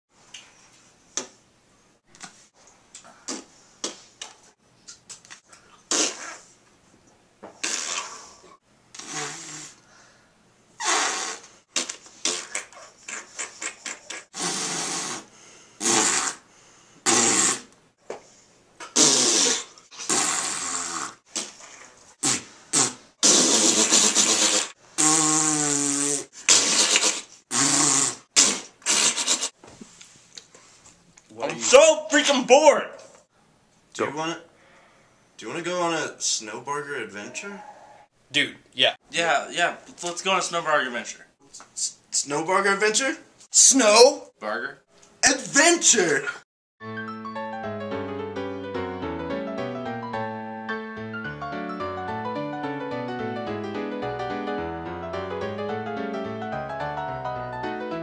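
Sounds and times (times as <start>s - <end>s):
mouth pops and clicks: 2.1s - 6.4s, 10.8s - 14.5s, 22.2s - 29.5s
blowing raspberries: 5.8s - 6.6s, 7.6s - 10.1s, 10.8s - 17.8s, 18.8s - 29.6s.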